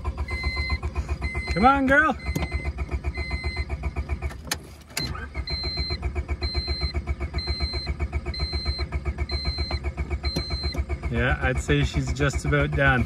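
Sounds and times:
starter cranking engine: 0.0s - 13.0s
warning chime beeping: 0.2s - 3.7s, 5.4s - 10.9s.

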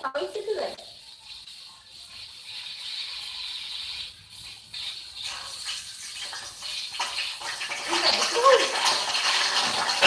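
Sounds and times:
frying pan sizzling: 0.0s - 10.0s.

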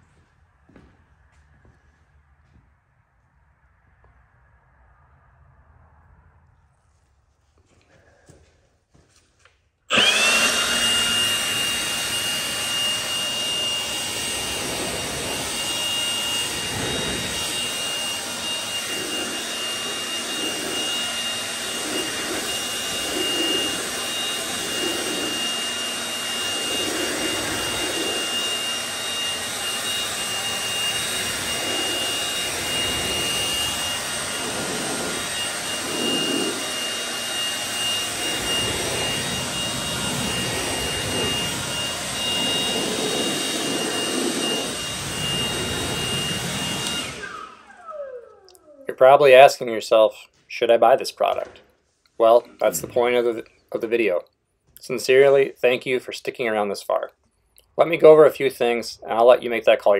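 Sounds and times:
leaf blower whining: 9.9s - 54.0s
rush of air: 11.6s - 47.4s.

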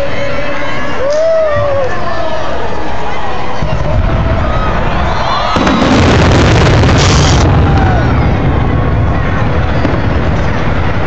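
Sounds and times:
crowd voices: 0.0s - 11.0s
low rumbling: 3.5s - 11.0s
fireworks booming: 3.6s - 11.0s
fireworks hiss: 5.6s - 7.6s.

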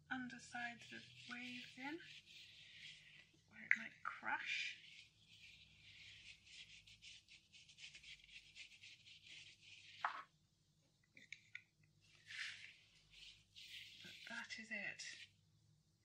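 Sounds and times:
paintbrush scrubbing strokes: 0.5s - 3.5s, 4.4s - 10.3s, 12.1s - 15.4s.

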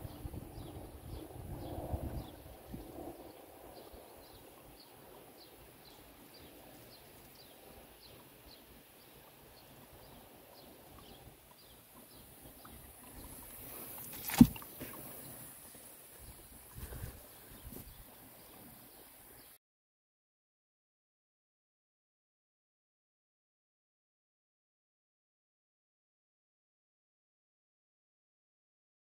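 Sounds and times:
bird chirping: 0.0s - 19.6s
sharp knock: 14.2s - 14.6s.

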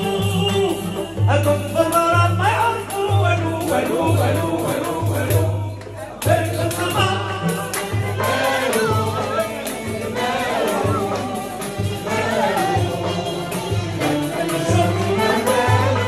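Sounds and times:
accordion: 0.0s - 16.0s
frame drum: 0.0s - 16.0s
goblet drum beat: 0.0s - 16.0s
voices singing melody: 0.0s - 16.0s
violins playing: 6.3s - 16.0s.

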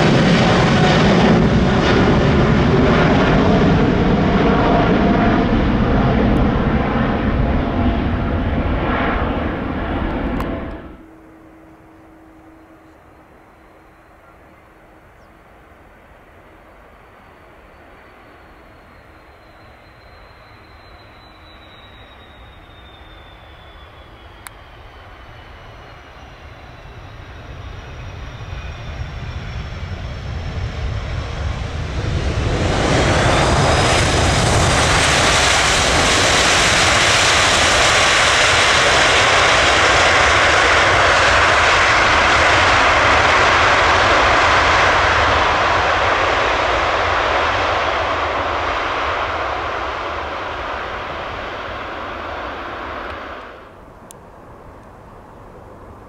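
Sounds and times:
falling jet whine: 0.0s - 15.2s, 16.8s - 56.0s
jet engines passing: 0.0s - 56.0s.

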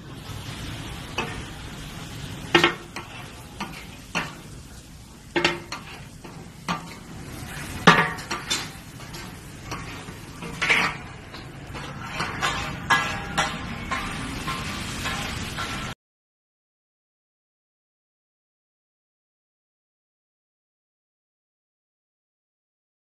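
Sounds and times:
oil sizzling on griddle: 0.0s - 16.0s
metal spatula scraping and clinking: 0.4s - 4.6s, 5.3s - 16.0s.

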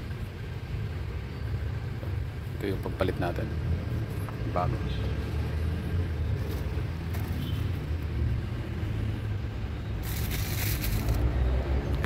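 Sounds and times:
plastic wrap crinkling: 10.0s - 11.2s.

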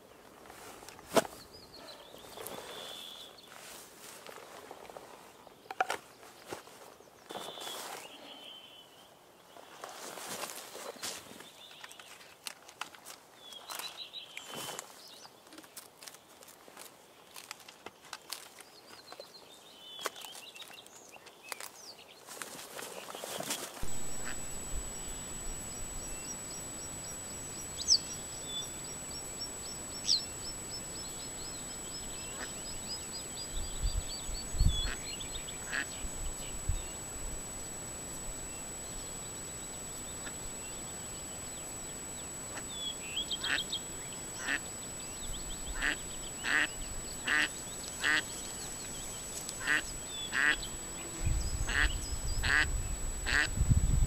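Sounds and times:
faint high whine: 23.7s - 54.0s
ducks quacking: 45.8s - 48.3s, 49.6s - 50.6s, 53.3s - 53.5s.

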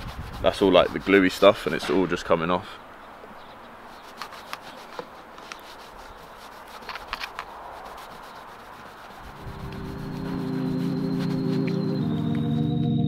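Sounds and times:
cloth scrubbing glass: 0.0s - 2.0s, 3.9s - 12.0s
light scratchy clicks: 4.0s - 5.9s, 6.7s - 8.0s.

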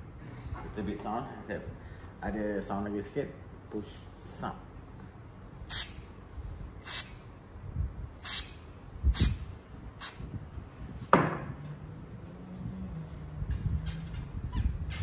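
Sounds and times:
aerosol spray hissing: 5.7s - 6.1s, 6.8s - 7.2s, 8.2s - 10.3s.

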